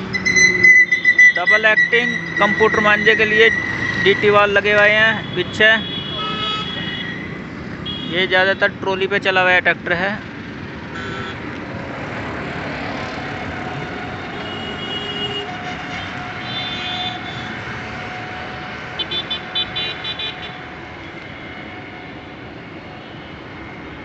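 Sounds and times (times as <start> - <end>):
road traffic noise: 0.0 - 24.0
vehicle horns: 0.1 - 8.7, 10.9 - 11.4, 14.2 - 18.3, 18.9 - 21.8.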